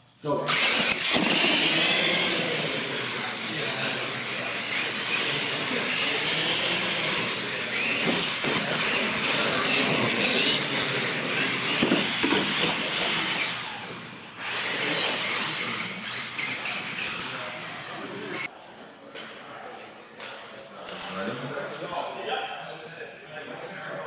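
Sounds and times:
toy truck motors whining: 0.5s - 18.5s.

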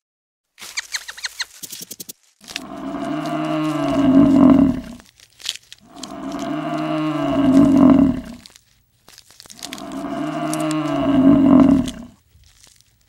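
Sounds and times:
cow mooing: 2.5s - 5.0s, 5.9s - 8.4s, 9.6s - 12.2s.

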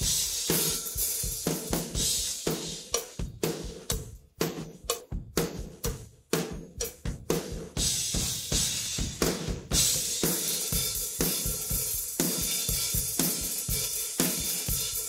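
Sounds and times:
driving drum beat: 0.0s - 15.0s
cymbals ringing: 0.4s - 1.4s.

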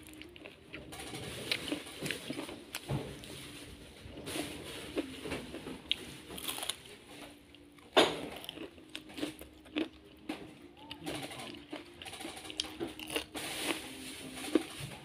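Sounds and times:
crunchy food being chewed: 0.0s - 3.3s, 4.1s - 13.8s.

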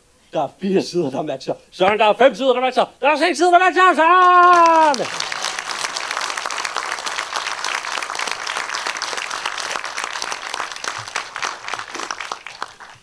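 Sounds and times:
audience applauding: 4.1s - 13.0s.

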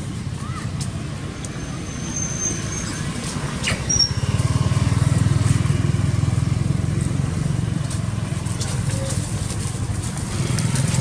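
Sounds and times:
motorbike engine rumbling: 3.4s - 11.0s.

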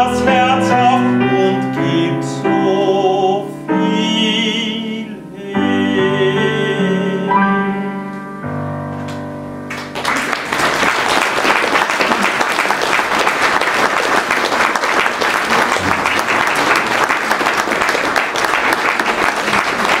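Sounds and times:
audience applauding: 9.7s - 20.0s.

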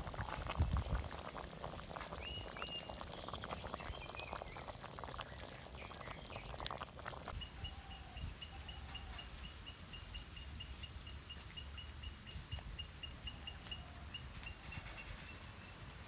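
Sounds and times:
stew bubbling in a pot: 0.0s - 7.4s.

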